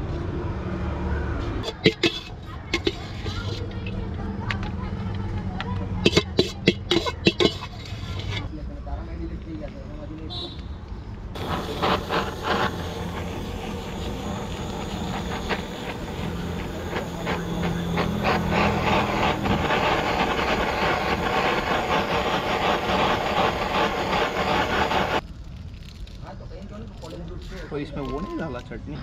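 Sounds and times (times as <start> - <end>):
blowtorch hissing: 1.6 - 3.9, 6.0 - 8.4, 11.4 - 25.2.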